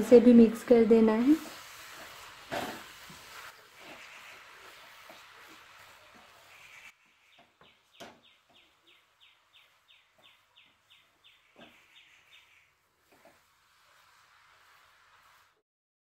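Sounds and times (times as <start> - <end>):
wooden spatula stirring thick mixture: 1.1 - 12.0, 13.0 - 15.6
bird chirping: 6.4 - 12.7.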